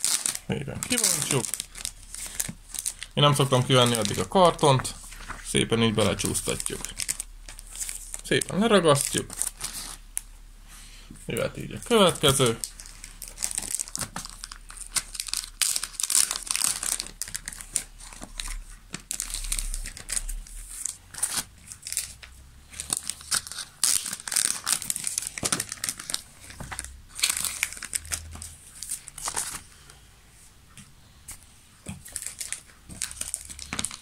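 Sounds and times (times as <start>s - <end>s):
plastic bags crinkling: 0.0s - 10.0s, 11.3s - 29.9s, 32.0s - 34.0s.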